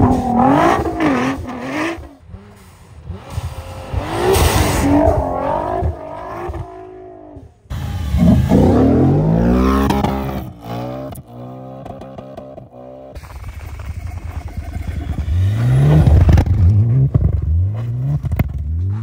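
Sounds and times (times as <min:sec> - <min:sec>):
car engine revving hard: 0:00.0 - 0:12.4.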